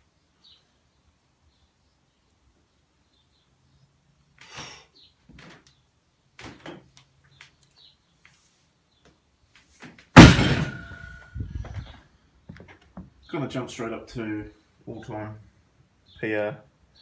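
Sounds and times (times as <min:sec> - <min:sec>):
barbell dropped on platform: 0:10.2 - 0:11.2.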